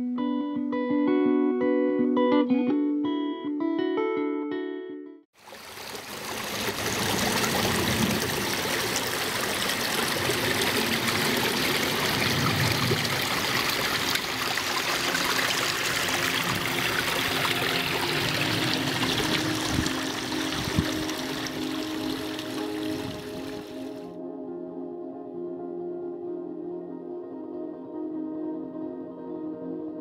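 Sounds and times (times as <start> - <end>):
water running over rocks: 5.4 - 24.0.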